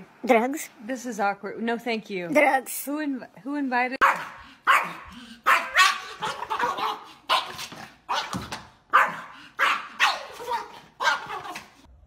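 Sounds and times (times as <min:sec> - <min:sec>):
small dog barking: 0:04.0 - 0:11.8.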